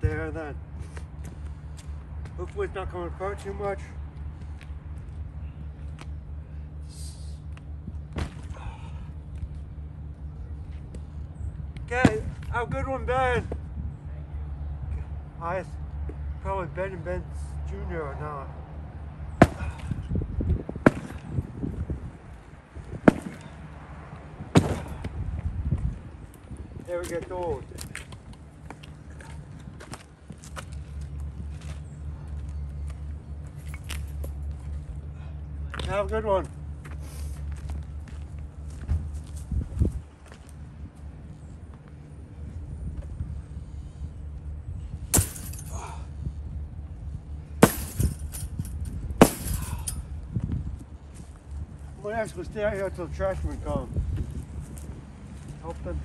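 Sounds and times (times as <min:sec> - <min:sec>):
sledgehammer striking sofa frame: 0:19.4 - 0:19.9, 0:24.6 - 0:24.9, 0:45.2 - 0:45.7, 0:47.6 - 0:48.5, 0:49.2 - 0:50.0
sledgehammer blows on couch: 0:19.4 - 0:20.1, 0:24.5 - 0:25.2, 0:47.6 - 0:48.4.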